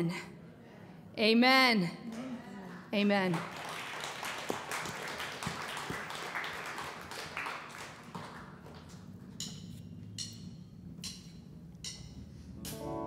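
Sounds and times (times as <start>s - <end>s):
metallic ticks on a cymbal: 9.4s - 12.8s.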